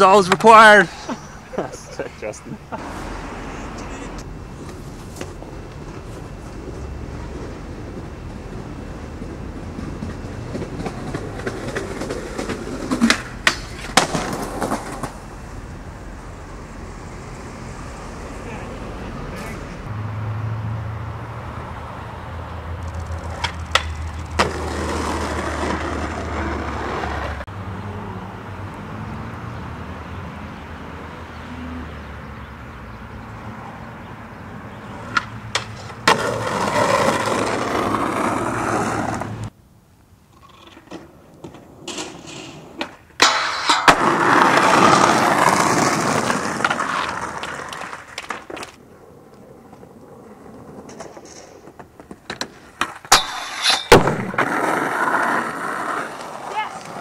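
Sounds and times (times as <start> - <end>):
skateboard wheels rolling and scraping: 2.2 - 19.9, 21.2 - 31.8, 33.2 - 39.6, 40.2 - 57.0
skateboard clacks: 3.8 - 15.4, 22.8 - 27.4, 35.0 - 39.4, 40.4 - 57.0.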